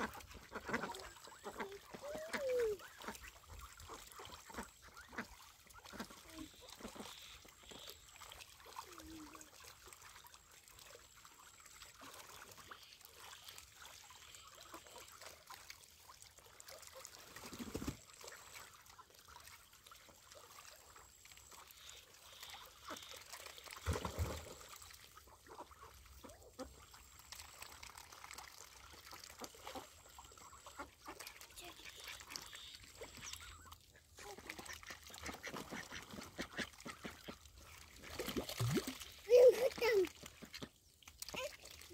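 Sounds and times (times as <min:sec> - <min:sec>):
water trickling: 0:00.0 - 0:41.9.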